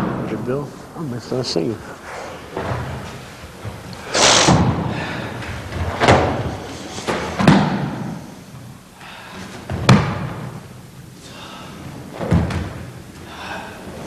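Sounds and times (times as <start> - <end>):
bodies slamming onto a mat: 9.6 - 10.6, 12.1 - 13.0.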